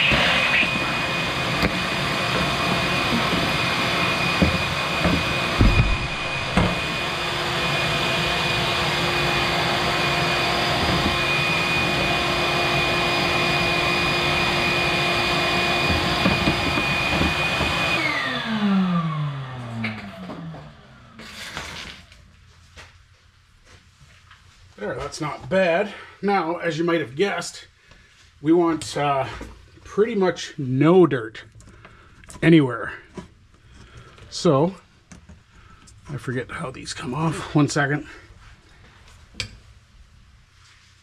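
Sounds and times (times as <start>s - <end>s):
vacuum cleaner running: 0.0s - 22.2s
grit and hose knocking: 1.6s - 7.2s, 10.7s - 11.6s, 15.4s - 18.0s.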